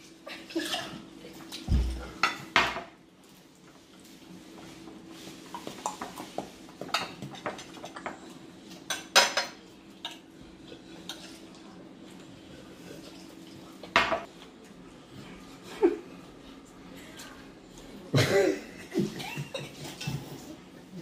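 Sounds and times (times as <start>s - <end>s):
cutlery clinking on plates: 5.6s - 11.5s, 19.4s - 20.4s.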